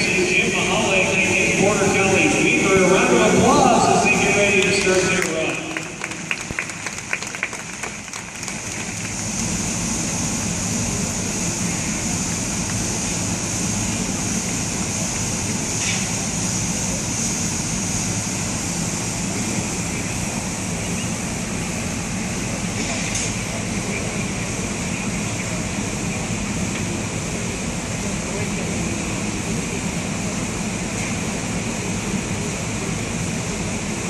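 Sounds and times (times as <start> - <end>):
steady rushing noise: 0.0 - 34.0
people clapping: 4.5 - 9.6.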